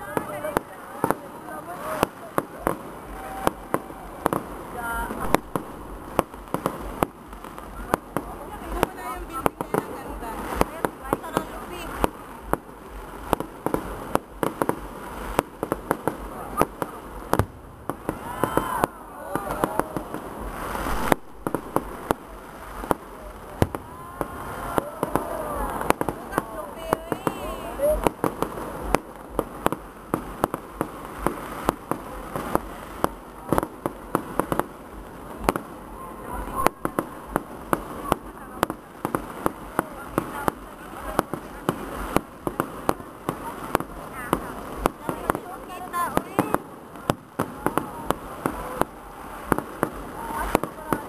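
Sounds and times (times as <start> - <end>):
fireworks bangs and crackling: 0.0 - 51.0
background rumble: 2.5 - 45.9
heavy deep firework bang: 4.2 - 7.9, 16.6 - 26.3.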